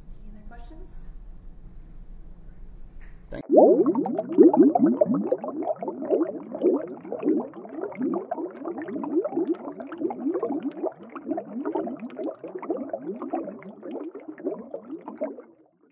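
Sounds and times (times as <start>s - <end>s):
water bubbling: 3.3s - 15.9s.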